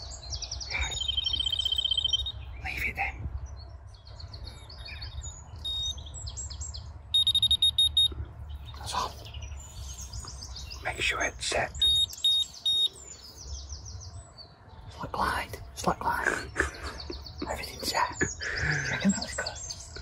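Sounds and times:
small birds chirping: 0.0 - 20.0
bite alarm short high beeps: 1.1 - 2.3, 5.6 - 6.0, 7.2 - 8.1, 11.8 - 12.9.

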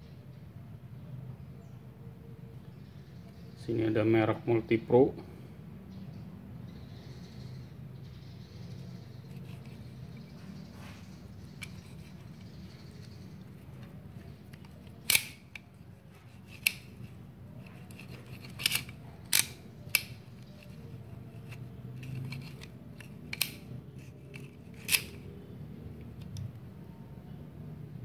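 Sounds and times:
pliers metal clicks: 13.8 - 25.2.

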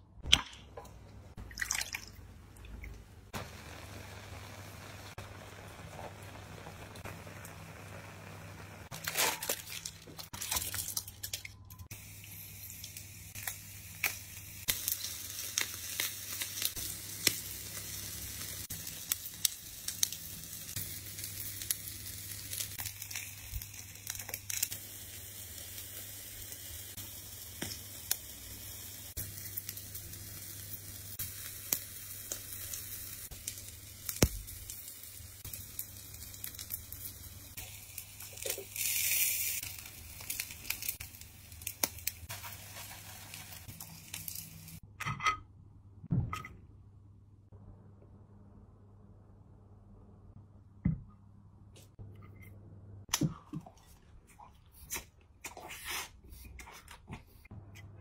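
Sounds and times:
food sizzling on a grill: 3.3 - 9.4, 11.9 - 44.8
aluminium foil crinkling: 8.9 - 11.5, 35.8 - 44.8.

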